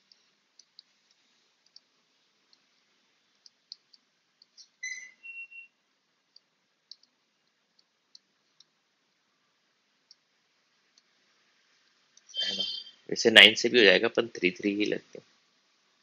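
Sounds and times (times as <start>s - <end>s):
short high squeak: 4.6s - 5.7s, 12.3s - 13.0s.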